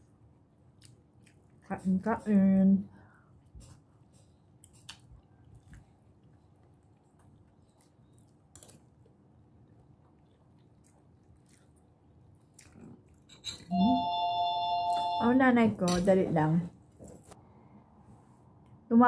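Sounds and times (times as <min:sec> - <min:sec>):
person chewing: 0:00.6 - 0:01.6, 0:03.5 - 0:13.7.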